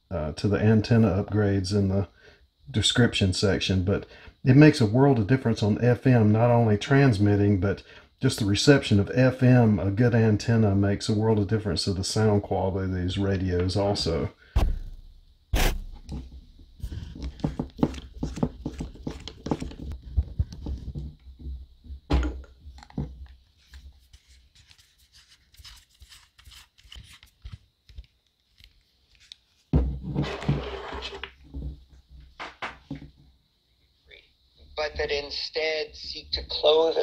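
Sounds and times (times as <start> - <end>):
antenna scratching and clicking: 16.8 - 21.0.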